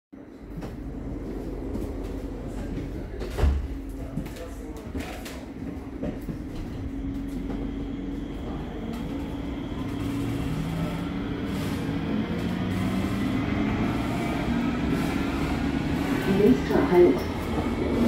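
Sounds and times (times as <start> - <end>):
light-rail car rumble: 0.2 - 18.0
electric traction motor whine: 6.5 - 18.0.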